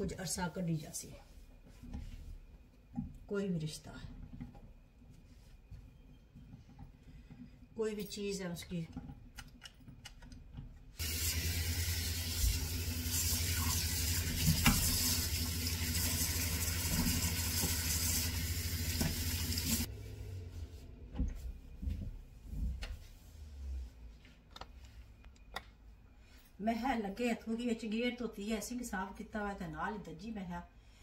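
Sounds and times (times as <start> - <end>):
tap running into metal sink: 13.6 - 15.2, 18.9 - 19.8.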